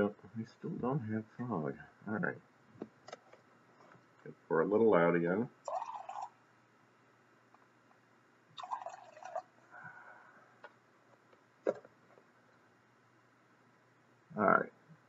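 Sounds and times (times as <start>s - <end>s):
water pouring into a glass cup: 5.7s - 6.4s, 8.6s - 9.6s.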